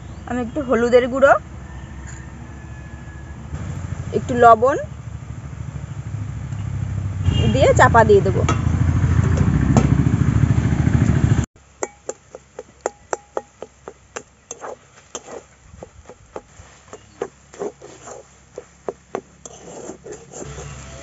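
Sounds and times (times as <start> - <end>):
loud low rumble: 3.3 - 11.5
metal spatula scraping a pan: 11.8 - 21.0.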